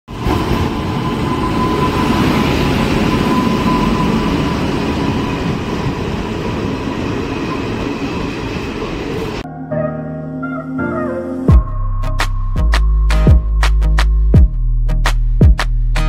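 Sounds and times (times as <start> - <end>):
train rumbling on rails: 0.1 - 9.4.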